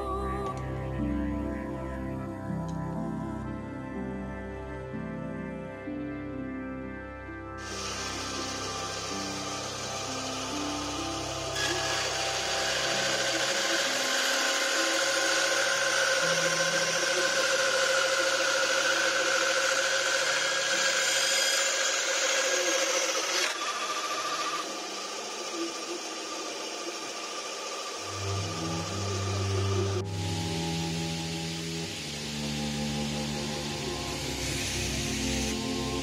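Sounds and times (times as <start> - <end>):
band saw cutting: 7.6 - 36.0
band saw motor hum: 7.6 - 36.0.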